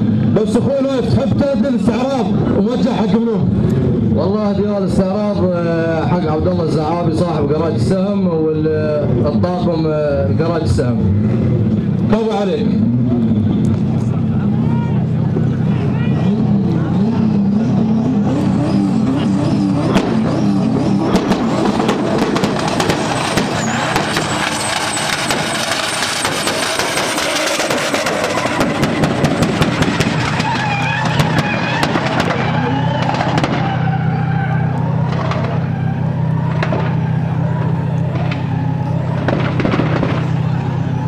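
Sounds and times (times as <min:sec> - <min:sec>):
engine revving hard: 0:16.1 - 0:41.0
tyres spinning and skidding: 0:16.2 - 0:41.0
sharp crackles: 0:21.2 - 0:40.8.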